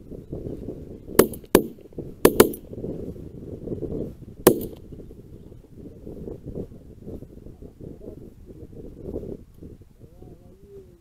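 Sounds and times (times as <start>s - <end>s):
wind rumble on microphone: 0.0s - 11.0s
shotgun shots: 1.2s - 2.6s, 4.5s - 4.8s.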